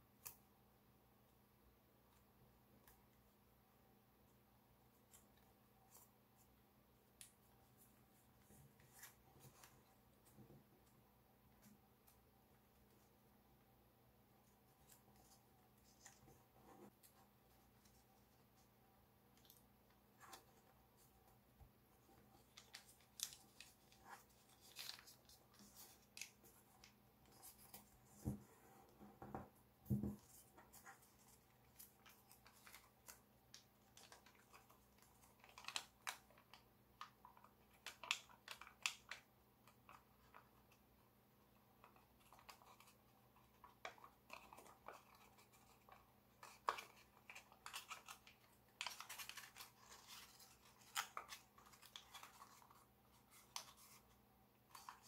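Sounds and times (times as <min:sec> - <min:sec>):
paper crackling and rustling: 0:22.0 - 0:28.4, 0:29.9 - 0:40.7, 0:41.8 - 0:55.0.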